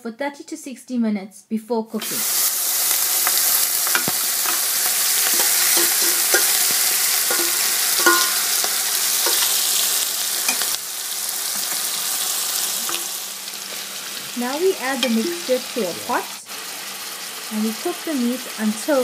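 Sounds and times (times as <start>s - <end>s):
meat sizzling in oil: 2.0s - 19.0s
stirring clicks: 3.0s - 9.8s, 12.6s - 13.2s.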